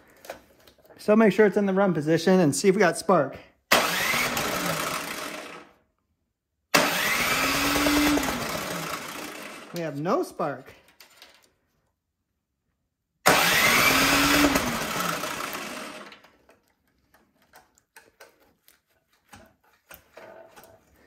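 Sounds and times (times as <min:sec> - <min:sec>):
electric starter cranking engine: 0:03.7 - 0:05.8, 0:06.7 - 0:09.9, 0:13.2 - 0:16.4.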